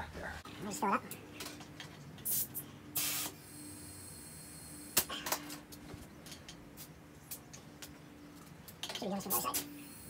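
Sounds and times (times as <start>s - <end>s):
air hissing from tyre valve: 2.2s - 5.1s.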